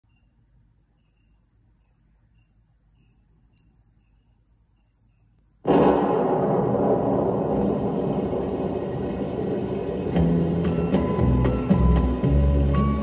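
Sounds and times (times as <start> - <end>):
cricket chirps: 0.0 - 13.0
high insect trill: 0.0 - 13.0
recorded music through speakers: 10.2 - 13.0.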